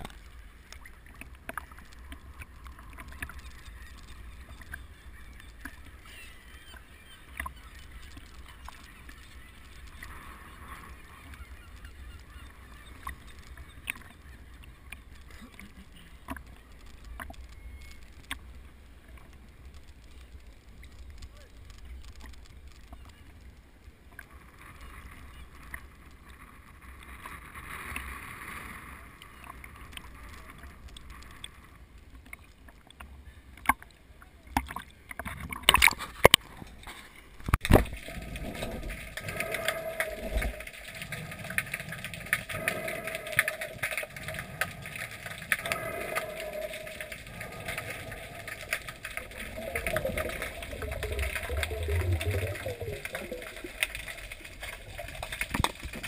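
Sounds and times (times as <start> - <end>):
muffled underwater noise with hum: 0.0 - 56.0
water sloshing against camera: 29.3 - 56.0.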